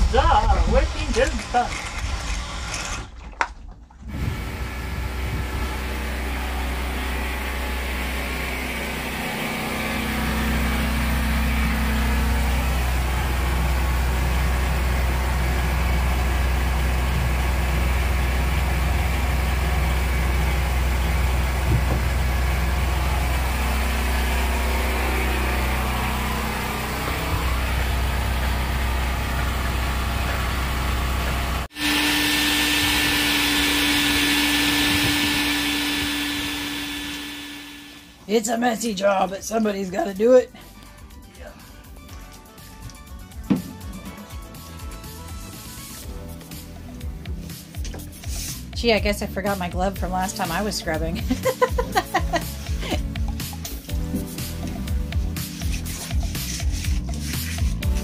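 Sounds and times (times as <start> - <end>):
low motor hum: 0.0 - 58.0
shop vacuum whining: 4.0 - 38.4, 50.8 - 55.4.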